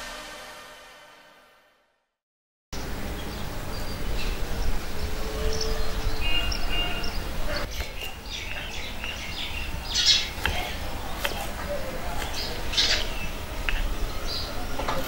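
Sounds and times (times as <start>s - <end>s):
birds chirping: 2.8s - 15.0s.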